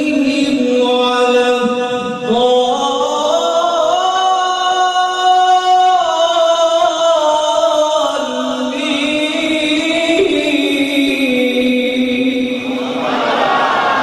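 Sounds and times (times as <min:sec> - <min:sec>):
man reciting melodically: 0:00.0 - 0:13.0.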